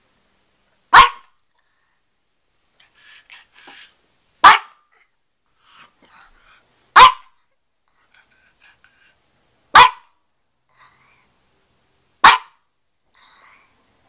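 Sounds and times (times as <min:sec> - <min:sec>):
small dog barking: 0:00.9 - 0:01.4, 0:04.4 - 0:04.9, 0:06.9 - 0:07.4, 0:09.7 - 0:10.2, 0:12.2 - 0:12.6.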